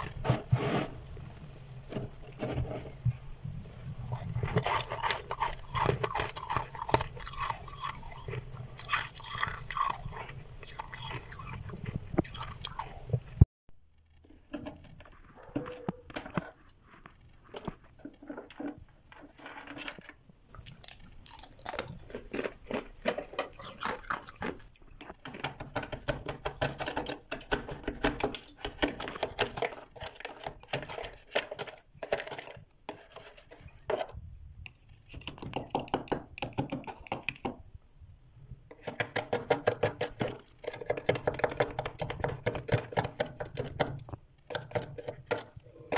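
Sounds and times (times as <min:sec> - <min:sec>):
frost crunching as scraped: 0:00.0 - 0:03.1, 0:03.7 - 0:12.9.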